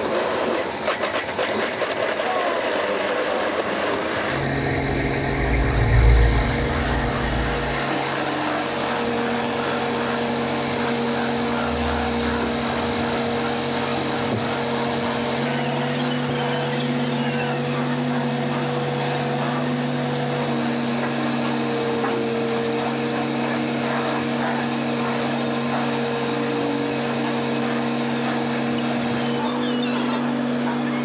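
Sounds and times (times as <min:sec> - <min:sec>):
boat engine and deck machinery drone: 0:00.0 - 0:31.0
low rumble: 0:04.4 - 0:08.2.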